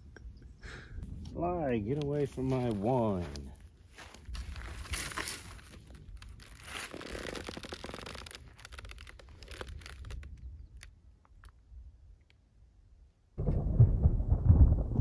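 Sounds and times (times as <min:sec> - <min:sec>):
wind rumble on microphone: 0:00.1 - 0:02.6, 0:13.4 - 0:15.0
rustling and crunching dry grass: 0:01.8 - 0:10.9.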